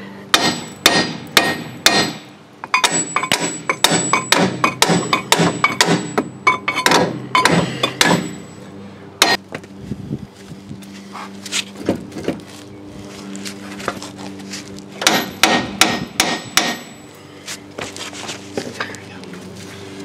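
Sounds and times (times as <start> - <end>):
hammer striking steel: 0.3 - 8.6, 9.2 - 9.4, 15.0 - 17.0.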